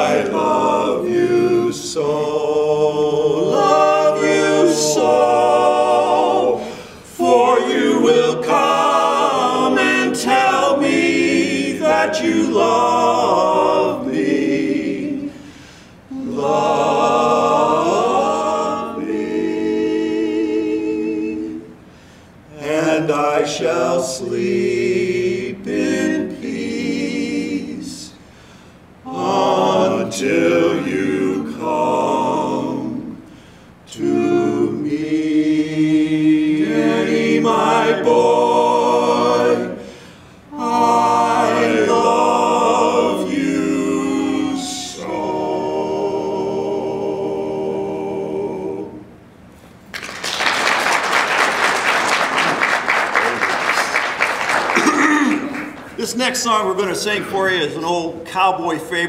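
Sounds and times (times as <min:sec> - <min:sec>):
male quartet singing a cappella: 0:00.0 - 0:49.2
audience applause: 0:49.9 - 0:56.0.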